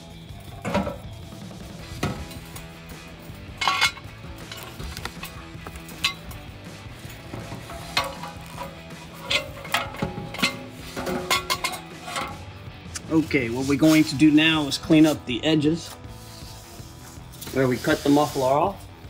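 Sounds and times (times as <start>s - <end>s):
metallic knocks and scrapes: 3.4s - 14.4s.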